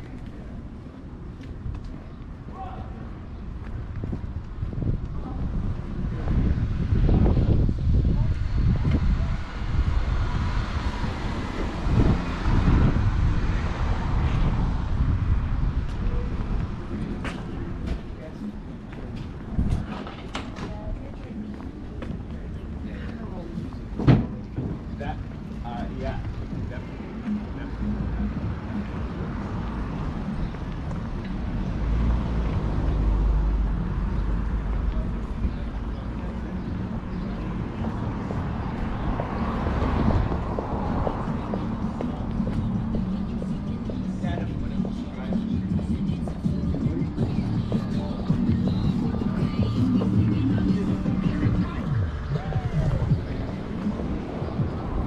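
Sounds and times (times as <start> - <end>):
traffic rumble: 0.0 - 55.0
wind buffeting microphone: 0.7 - 27.2.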